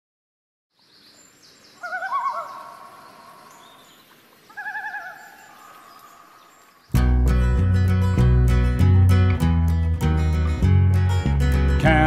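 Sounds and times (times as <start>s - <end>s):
faint forest ambience: 0.7s - 11.6s
loon tremolo call: 1.8s - 3.4s.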